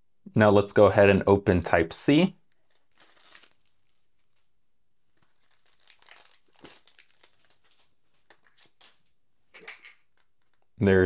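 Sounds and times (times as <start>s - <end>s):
plastic wrap crinkling: 2.4s - 9.2s.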